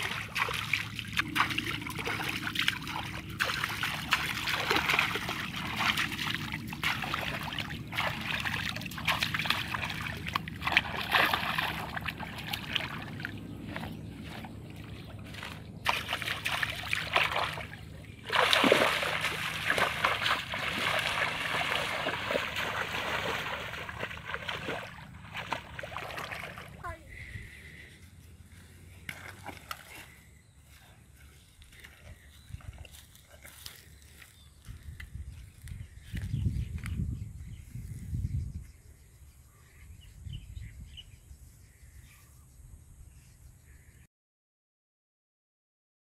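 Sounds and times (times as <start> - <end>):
water splashing from wading: 0.0 - 27.8, 29.0 - 30.2.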